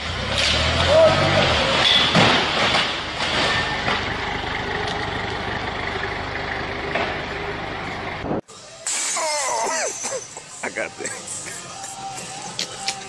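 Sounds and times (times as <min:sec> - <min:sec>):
forklift engine running: 0:02.9 - 0:08.4.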